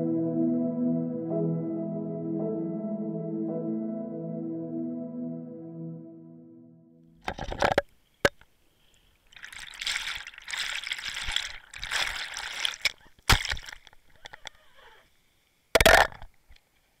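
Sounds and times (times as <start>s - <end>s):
water sloshing and splashing: 9.2s - 14.4s.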